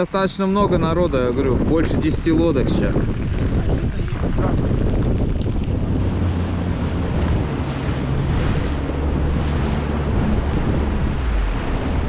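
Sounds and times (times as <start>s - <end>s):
sea water rushing: 0.0s - 12.0s
wind buffeting microphone: 0.0s - 12.0s.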